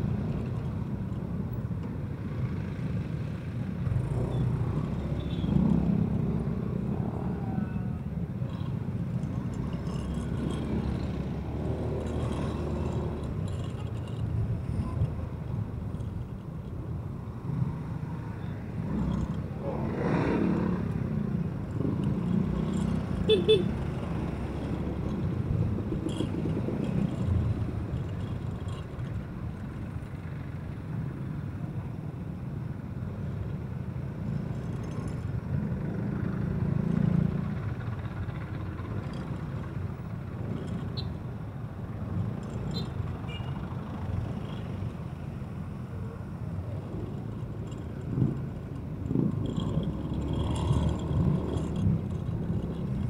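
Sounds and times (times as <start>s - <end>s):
surrounding traffic: 0.0s - 53.0s
scooter engine hum: 2.4s - 31.1s.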